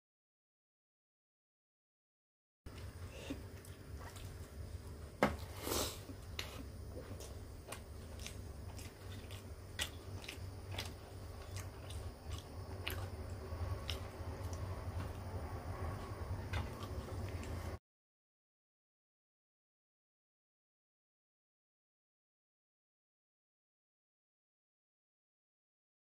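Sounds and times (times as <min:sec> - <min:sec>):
low steady hum: 0:02.7 - 0:17.8
man chewing with wet smacks: 0:02.7 - 0:17.8.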